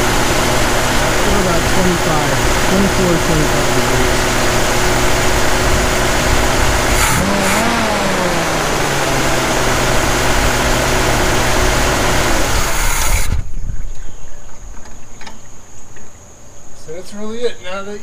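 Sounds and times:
car engine idling: 0.0 - 13.3.

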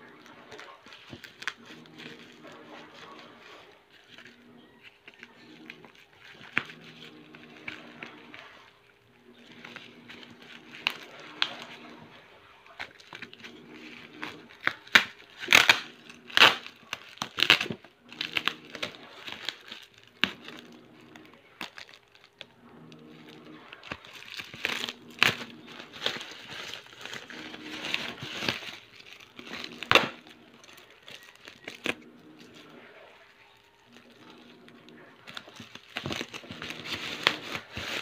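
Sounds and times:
scissors cutting plastic: 0.0 - 32.8, 33.4 - 38.0
plastic bag crinkling: 0.0 - 38.0.

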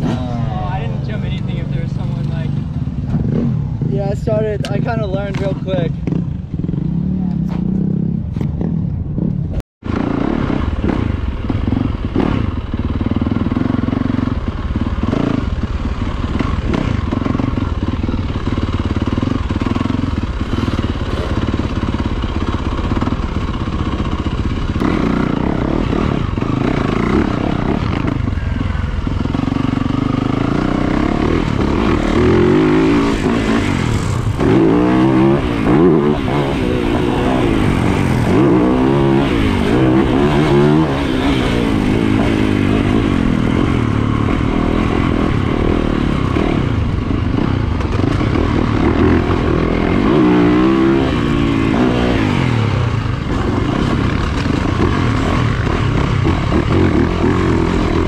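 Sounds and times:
dirt bike engine revving: 0.0 - 9.3, 9.9 - 58.0.

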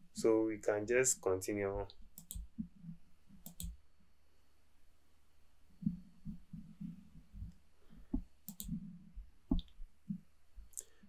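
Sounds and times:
computer mouse clicking: 2.1 - 2.5, 3.4 - 3.8, 8.2 - 8.8
soft low thuds: 5.8 - 10.7.

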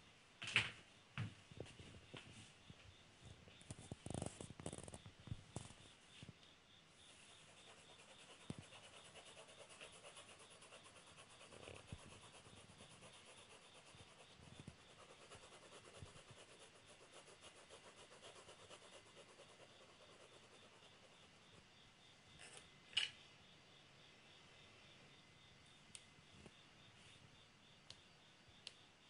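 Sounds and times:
pencil shading on paper: 7.1 - 21.4.

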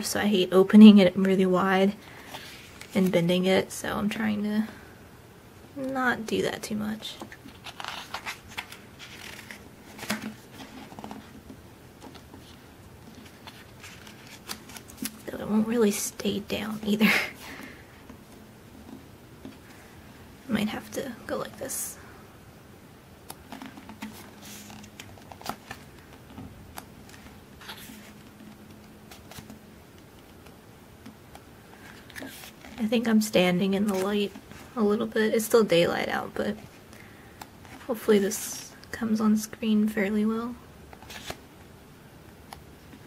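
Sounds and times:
paper pages turning: 7.2 - 15.3, 23.3 - 32.8, 33.8 - 34.8, 40.9 - 41.4.

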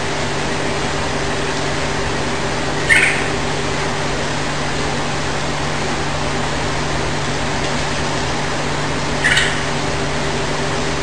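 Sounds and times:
bird call: 2.8 - 3.4, 9.2 - 9.8.

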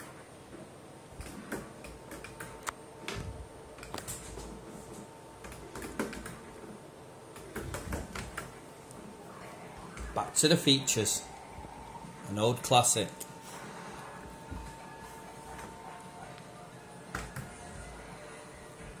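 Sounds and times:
faint steady machine tone: 8.6 - 19.0.

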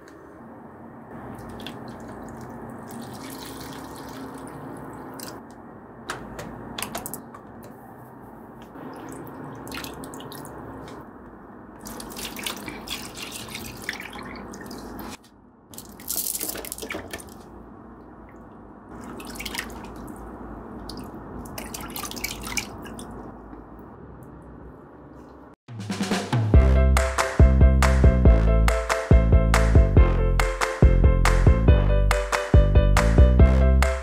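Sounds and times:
water dripping and trickling: 1.2 - 5.4, 8.8 - 10.8, 11.8 - 17.4, 18.0 - 23.3.

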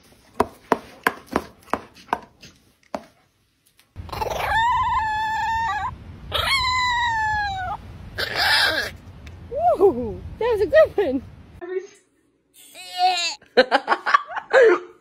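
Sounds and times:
dog howling: 4.1 - 9.0.

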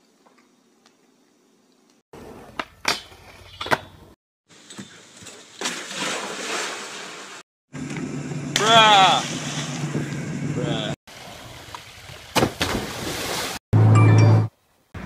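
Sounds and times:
pool water splashing: 4.6 - 7.4, 8.6 - 10.1, 11.1 - 13.6.

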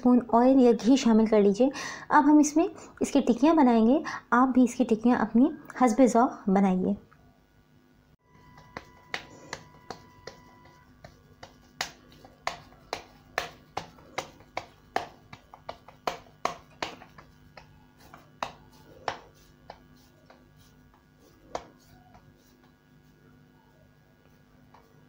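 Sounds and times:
hands patting patties: 8.4 - 23.1.

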